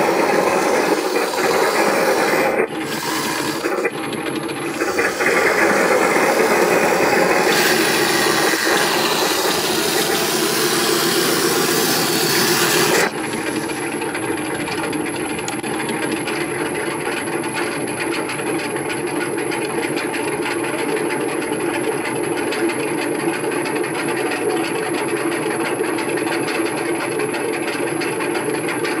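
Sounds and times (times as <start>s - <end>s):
robot tracks grinding rattle: 0.0s - 15.0s
faint high motor whine: 0.0s - 17.0s.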